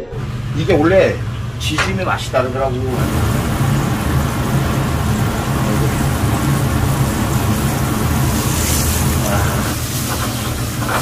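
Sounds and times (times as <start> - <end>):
fish frying in oil: 2.4 - 11.0.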